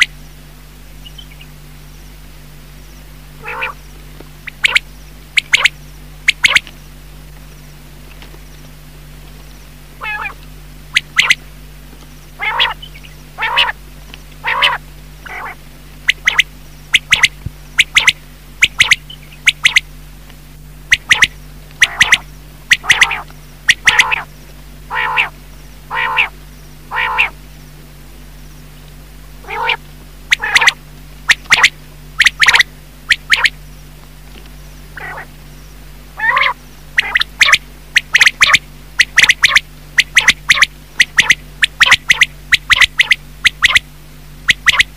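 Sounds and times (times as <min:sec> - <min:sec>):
steady low hum: 0:00.0 - 0:44.9
quail calls: 0:03.4 - 0:06.7, 0:10.0 - 0:11.5, 0:12.4 - 0:13.8, 0:14.4 - 0:19.9, 0:20.9 - 0:24.3, 0:24.9 - 0:27.4, 0:29.4 - 0:33.6, 0:34.9 - 0:35.4, 0:36.2 - 0:44.9.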